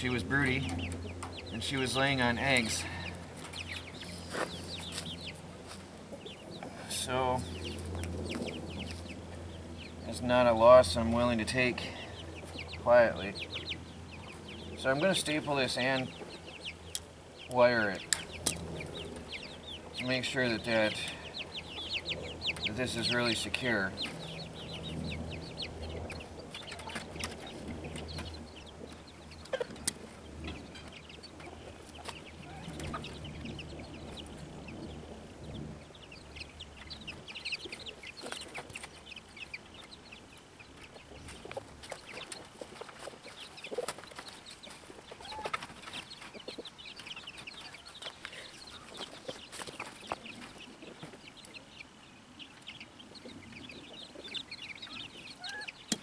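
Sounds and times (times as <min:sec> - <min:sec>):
chickens clucking: 0:00.0 - 0:56.0
low steady hum: 0:00.0 - 0:56.0.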